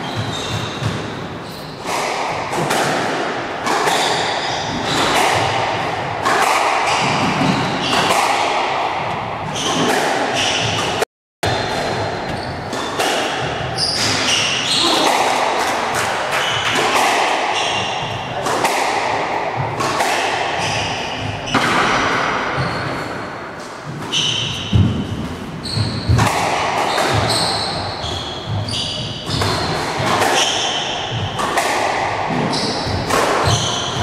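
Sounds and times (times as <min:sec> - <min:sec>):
shoes squeaking on wooden floor: 0:00.0 - 0:01.9, 0:11.6 - 0:12.8
squash ball smacking rackets and walls: 0:00.0 - 0:34.0.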